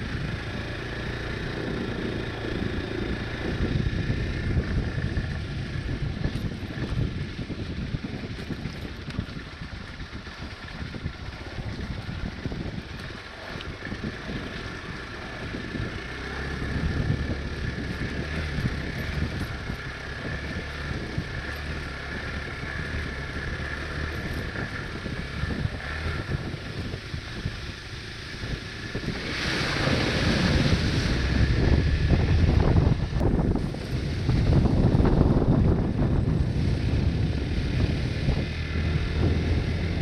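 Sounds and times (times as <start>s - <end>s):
motorcycle engine running: 0.0s - 40.0s
wind on microphone: 0.0s - 40.0s.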